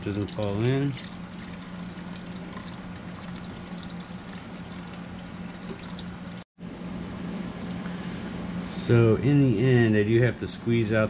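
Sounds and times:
liquid pouring into strainer: 0.0 - 6.4.

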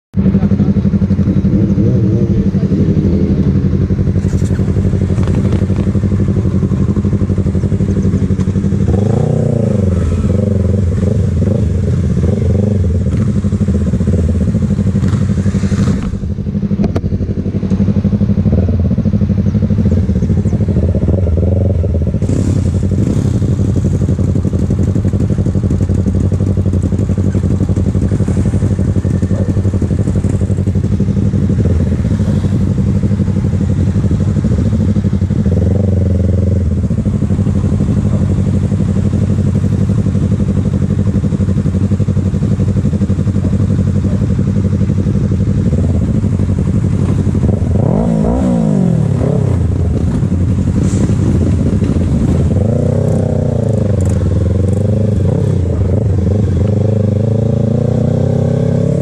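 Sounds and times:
motorcycle engine idling: 0.2 - 58.4
motorcycle engine revving: 0.2 - 59.0.

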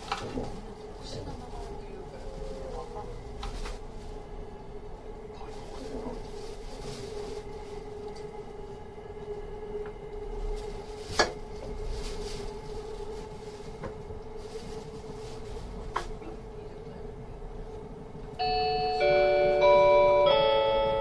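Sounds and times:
steady hum: 0.0 - 21.0
train running noise: 0.0 - 21.0
announcement chime: 18.4 - 21.0.

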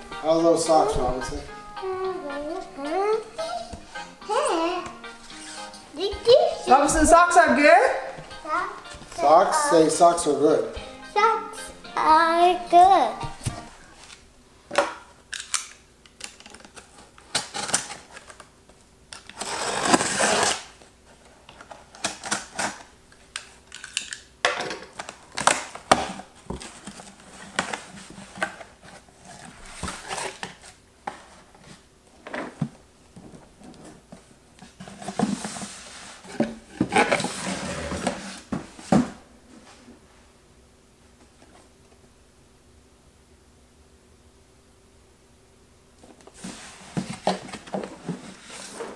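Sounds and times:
knife slitting packing tape: 19.3 - 20.7
scraping rustle of box: 19.4 - 20.7, 34.7 - 38.9.

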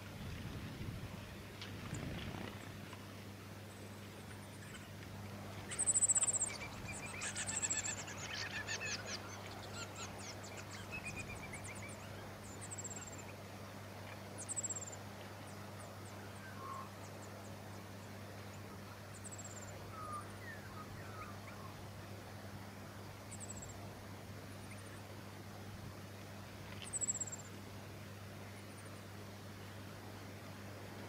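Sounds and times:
faint low hum: 0.0 - 31.0
songbirds calling: 3.6 - 25.2, 26.6 - 27.6.

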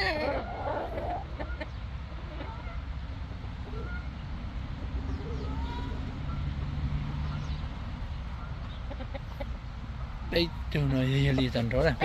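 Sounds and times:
faint chicken calls: 0.0 - 4.4, 5.0 - 6.6.

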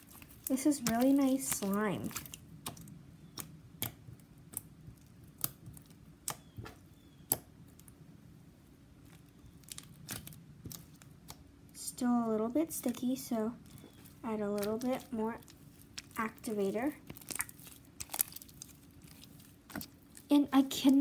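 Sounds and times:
faint low hum: 0.0 - 21.0
slime clicking and popping: 0.1 - 7.9, 9.4 - 11.5, 14.6 - 20.3.

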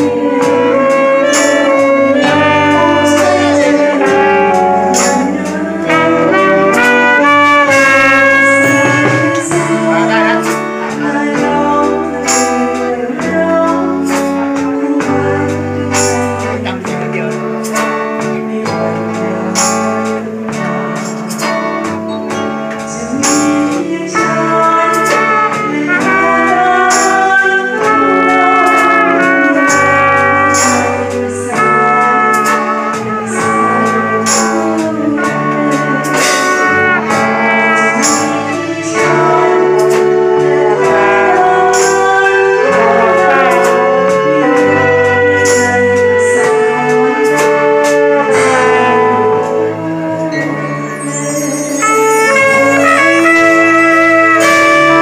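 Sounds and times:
drum beat: 0.0 - 13.6
bass line: 0.0 - 14.0
saxophone melody: 0.0 - 55.0.

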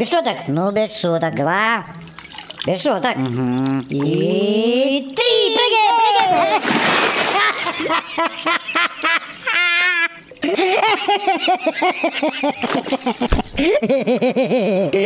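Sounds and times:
short low thud: 13.2 - 13.8.

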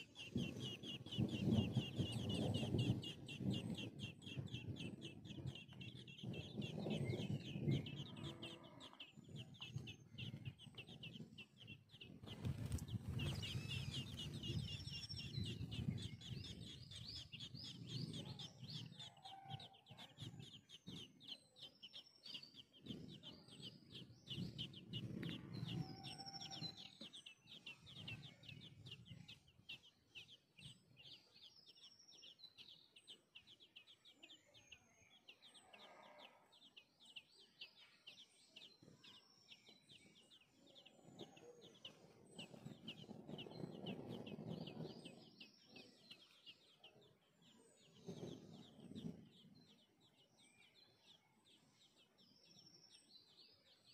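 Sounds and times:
birds chirping: 0.0 - 53.9
whistled bird notes: 13.1 - 36.2.

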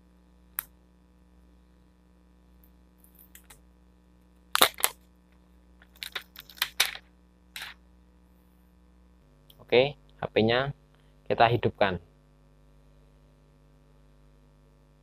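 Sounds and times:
plastic film peeling crackles: 4.5 - 5.0.

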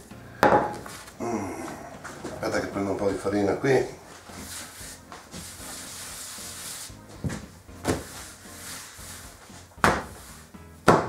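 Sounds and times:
hand rubbing flour on steel: 2.1 - 7.2, 7.9 - 10.5
dough thumping on steel: 9.8 - 10.2.

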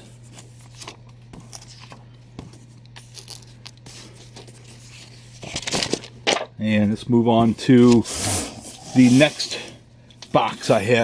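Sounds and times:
steady low hum: 0.0 - 11.0
paper pages rustling: 0.2 - 6.2.

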